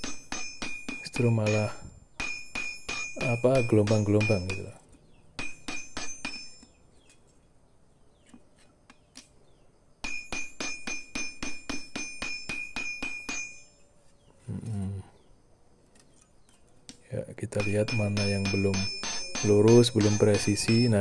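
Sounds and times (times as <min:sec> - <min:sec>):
hammer striking blade on anvil: 0:00.0 - 0:04.8, 0:05.4 - 0:06.7, 0:10.0 - 0:13.7, 0:17.6 - 0:21.0.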